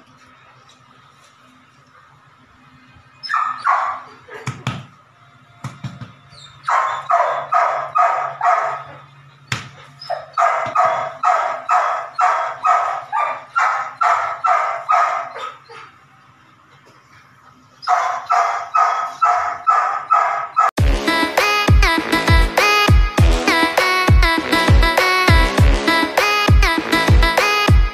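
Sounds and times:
puppy barking: 0:03.2 - 0:04.6, 0:06.6 - 0:09.0, 0:09.7 - 0:16.0, 0:17.8 - 0:20.7.

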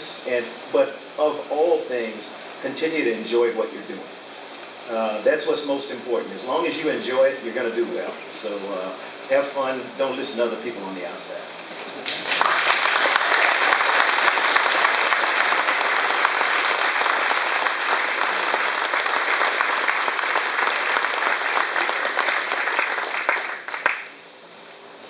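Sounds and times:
audience applauding: 0:12.0 - 0:24.2.

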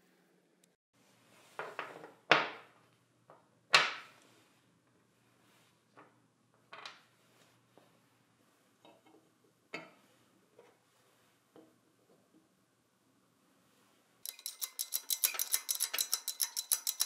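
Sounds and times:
tools knocking and clunking: 0:14.3 - 0:17.0.

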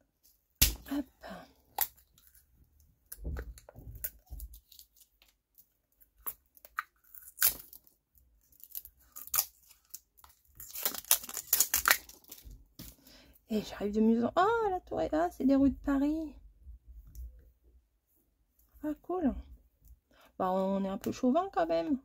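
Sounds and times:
packaging being torn open: 0:06.2 - 0:07.9, 0:08.5 - 0:12.4.

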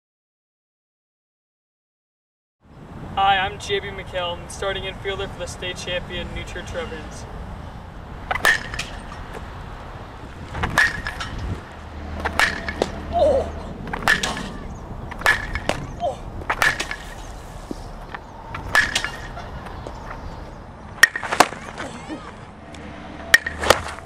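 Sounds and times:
baseball bat cracking: 0:08.0 - 0:24.0.

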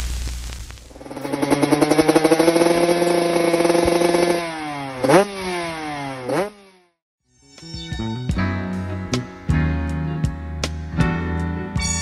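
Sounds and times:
motorcycle engine revving: 0:00.9 - 0:07.0.

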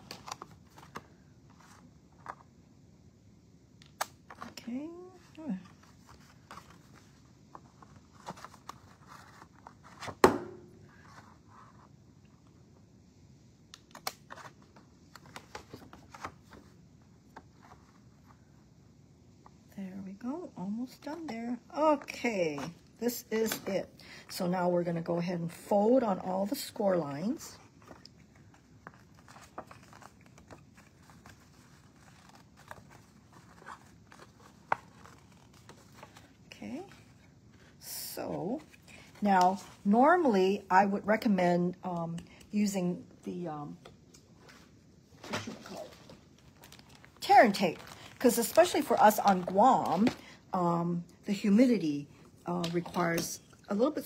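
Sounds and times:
paper rustling: 0:00.0 - 0:02.5, 0:05.6 - 0:10.3, 0:27.6 - 0:37.8, 0:44.4 - 0:50.4.

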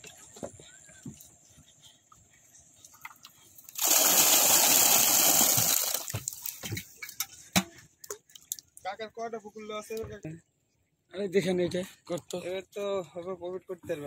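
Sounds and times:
water gushing and splashing: 0:03.7 - 0:06.8
small splashes and knocks: 0:05.1 - 0:08.8.

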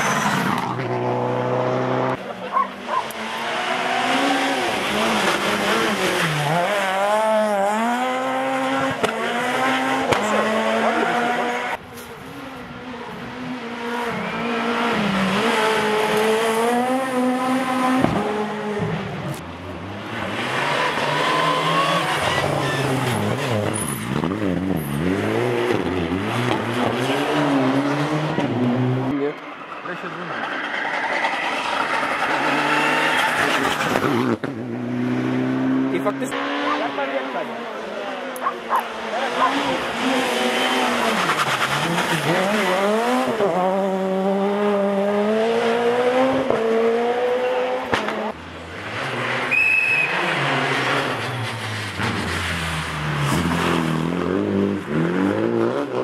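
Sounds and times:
rally car engines revving: 0:00.0 - 0:56.0.

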